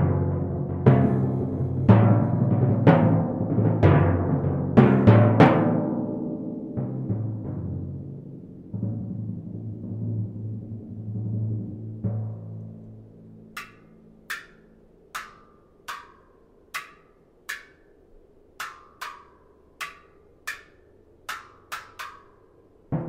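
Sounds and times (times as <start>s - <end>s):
mallet handles clicking on drum rims: 13.5s - 23.0s.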